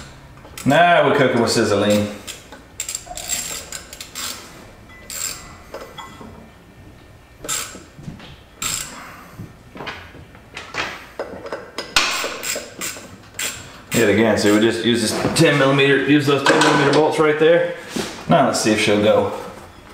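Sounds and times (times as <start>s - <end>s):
hand tools clicking and scraping metal: 0.0s - 6.3s, 7.4s - 7.9s, 8.6s - 9.2s, 10.6s - 15.9s.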